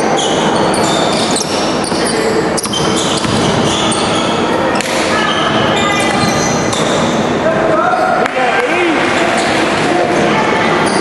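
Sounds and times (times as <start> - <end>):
sneakers squeaking on gym floor: 0.0 - 7.3
basketball bouncing: 2.6 - 4.2.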